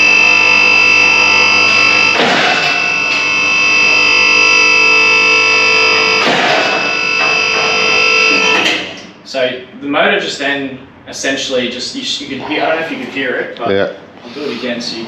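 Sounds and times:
distorted electric guitar chords: 0.0 - 9.0.

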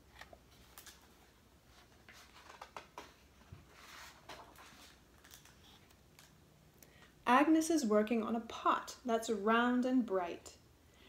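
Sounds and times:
paper rustling: 0.1 - 6.0.

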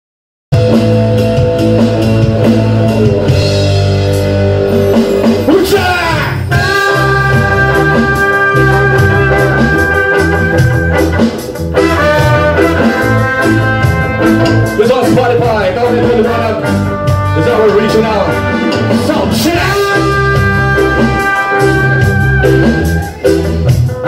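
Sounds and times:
live reggae band playing: 0.5 - 24.0
trumpet: 5.0 - 23.2
trombone: 6.5 - 22.8.

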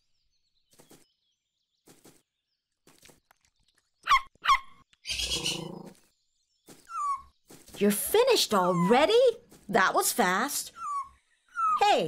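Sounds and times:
cartoon puppy yipping: 4.1 - 4.7, 6.9 - 7.3, 10.7 - 11.9.

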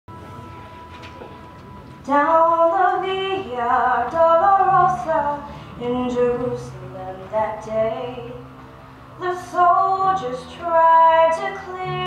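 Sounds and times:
steady high-pitched tone: 0.1 - 3.8.

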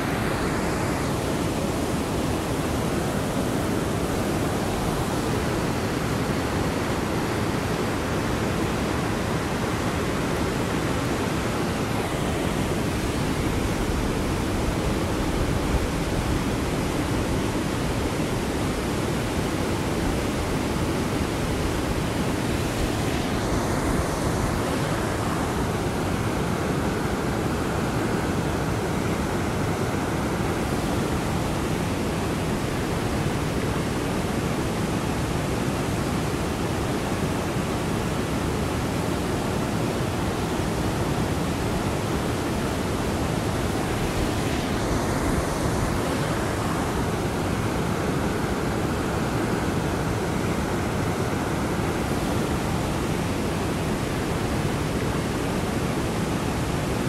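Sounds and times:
river rapids rushing: 0.0 - 57.0.

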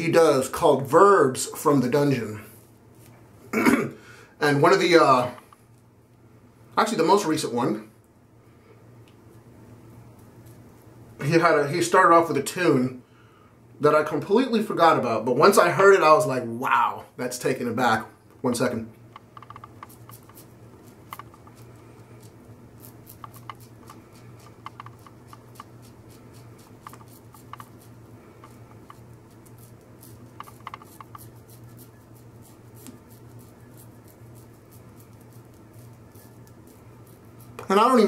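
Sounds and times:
razor scraping stubble: 10.1 - 11.6, 18.6 - 38.0.

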